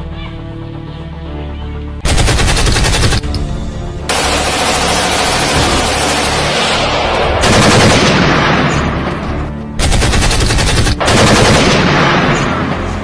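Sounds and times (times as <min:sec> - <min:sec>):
machine-gun fire: 0:02.0 - 0:03.3, 0:04.1 - 0:08.9, 0:09.8 - 0:12.7.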